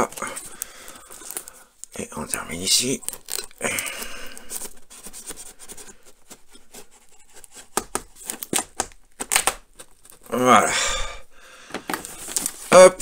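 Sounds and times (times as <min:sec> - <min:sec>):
knife slicing packing tape: 0:03.0 - 0:10.1.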